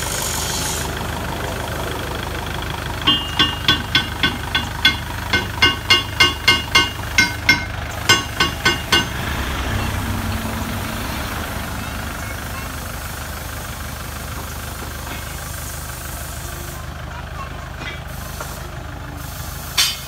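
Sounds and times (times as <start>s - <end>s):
diesel tractor engine idling: 0.0s - 20.0s
sharp ringing ticks: 3.1s - 9.2s.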